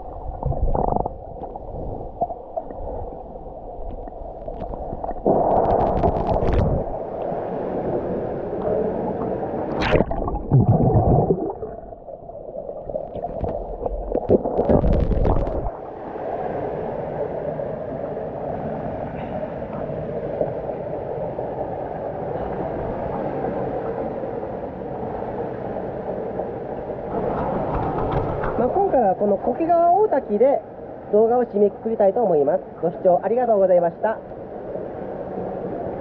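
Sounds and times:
underwater gurgling and swirling: 0:00.0 - 0:18.1.

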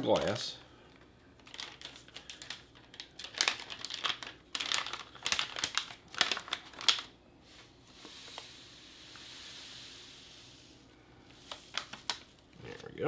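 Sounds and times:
foil pouch crinkling: 0:01.4 - 0:07.2, 0:11.4 - 0:12.5.

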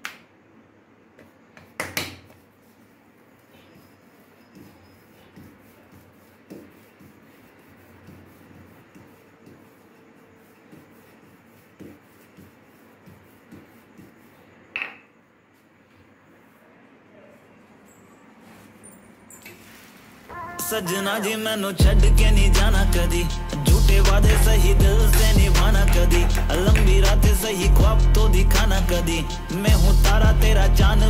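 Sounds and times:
rolling pin rubbing on dough: 0:01.6 - 0:14.7, 0:22.2 - 0:31.0
wood knocking on counter: 0:14.8 - 0:15.0.

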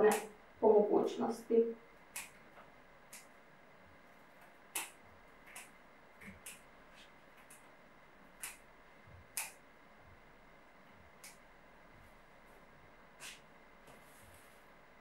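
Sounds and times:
scissors snipping stems: 0:00.0 - 0:00.3, 0:02.1 - 0:02.5, 0:03.1 - 0:03.3, 0:04.4 - 0:07.6, 0:08.3 - 0:08.7, 0:09.3 - 0:09.6, 0:11.2 - 0:11.4.

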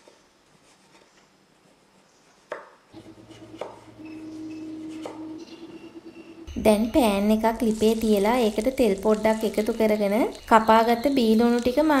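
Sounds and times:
low steady hum: 0:03.0 - 0:12.0.

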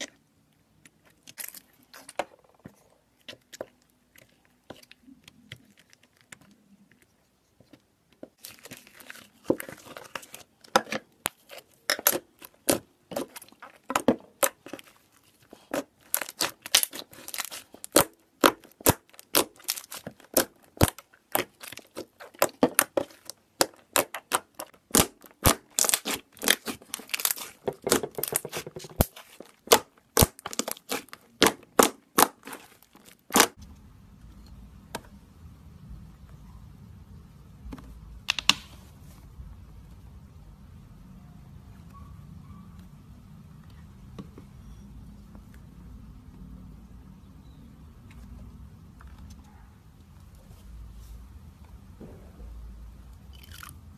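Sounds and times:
slime popping and crackling: 0:15.6 - 0:33.6.

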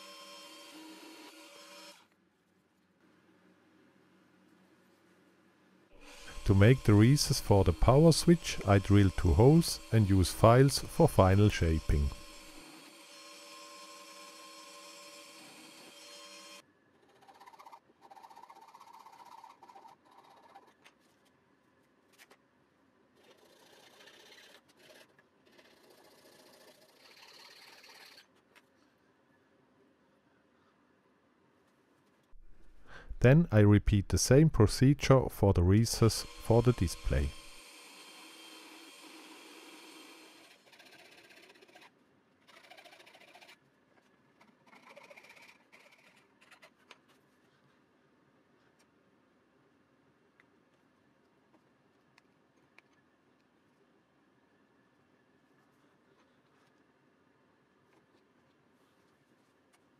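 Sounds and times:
drill press running: 0:06.0 - 0:16.6, 0:35.9 - 0:41.2
hand file rasping on wood: 0:23.2 - 0:28.2, 0:39.5 - 0:41.9, 0:42.5 - 0:43.6.

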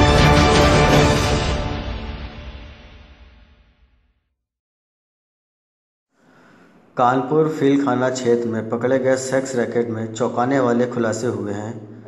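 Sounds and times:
news intro theme music: 0:00.0 - 0:03.8.

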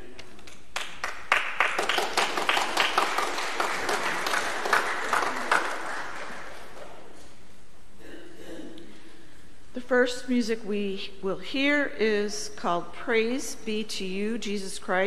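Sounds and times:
congregation applauding: 0:00.6 - 0:07.0.

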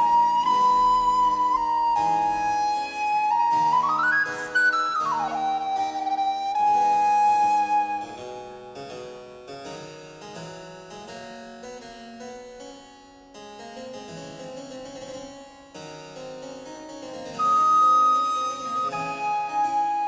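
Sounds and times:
harpsichord playing: 0:13.3 - 0:20.0.

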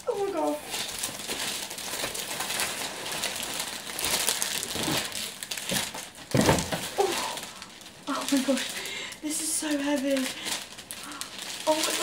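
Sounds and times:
cellophane crinkling: 0:00.0 - 0:12.0.

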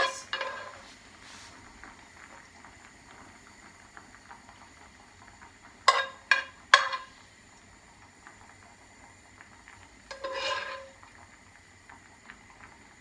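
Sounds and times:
spoon tapping on pan: 0:00.0 - 0:00.8, 0:05.8 - 0:07.1
spoon scraping frying pan: 0:00.0 - 0:01.0, 0:05.9 - 0:07.1, 0:10.1 - 0:11.0.

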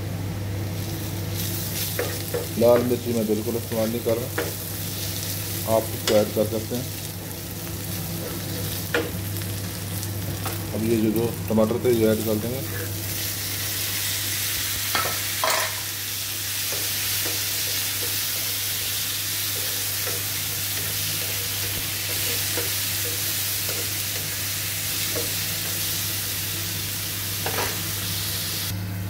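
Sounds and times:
tomatoes sizzling in hot oil: 0:00.6 - 0:28.7.

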